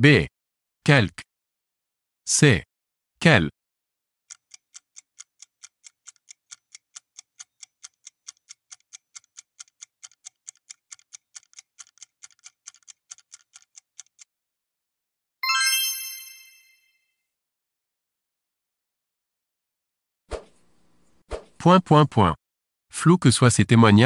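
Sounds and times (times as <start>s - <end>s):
quick clock ticks: 4.3s - 14.3s.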